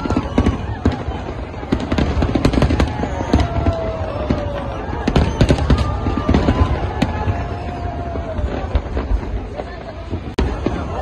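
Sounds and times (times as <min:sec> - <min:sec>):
fireworks bangs and crackles: 0:00.0 - 0:11.0
fireworks whistles sliding down: 0:02.4 - 0:09.4.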